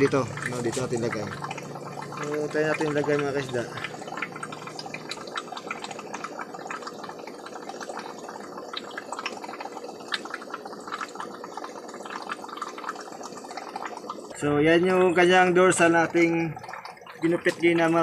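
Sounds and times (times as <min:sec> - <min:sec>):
aquarium water bubbling: 0:00.0 - 0:18.0
faint steady hum: 0:00.0 - 0:18.0.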